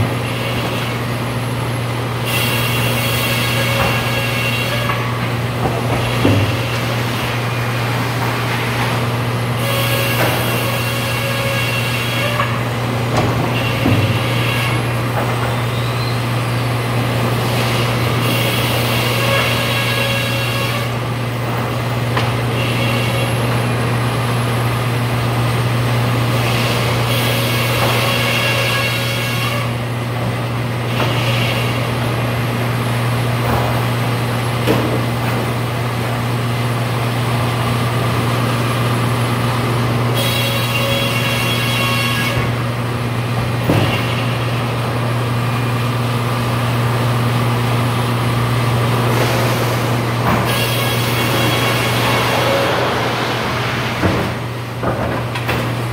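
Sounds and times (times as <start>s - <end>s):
sawmill machine hum: 0.0s - 55.9s.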